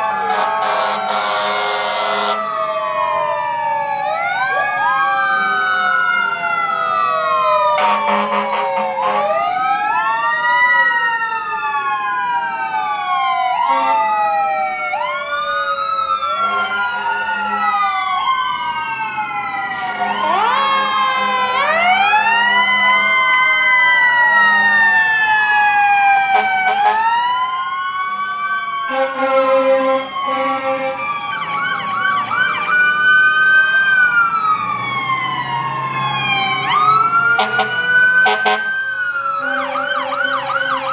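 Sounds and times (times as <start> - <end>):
fast warbling siren yelp: 0.0 - 40.9
fire truck sirens wailing: 0.0 - 40.9
loud horn blasts: 0.3 - 2.4, 7.8 - 9.4, 13.6 - 14.1, 26.3 - 27.1, 28.9 - 31.1, 37.4 - 38.7.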